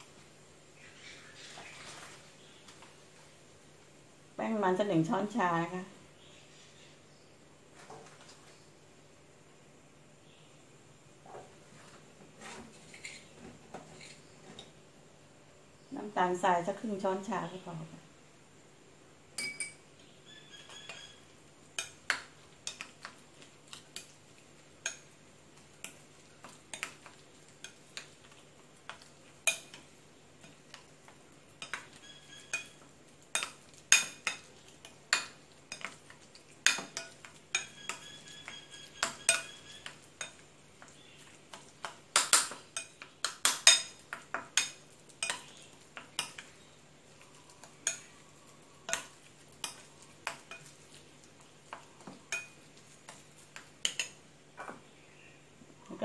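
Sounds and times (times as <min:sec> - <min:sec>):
spoon clinking and scraping bowl: 0:19.4 - 0:19.8, 0:25.8 - 0:54.2.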